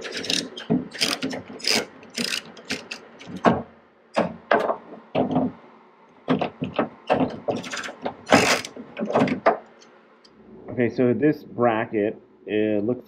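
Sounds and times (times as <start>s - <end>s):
socket ratchet clicking: 0.0s - 3.0s, 8.4s - 8.7s.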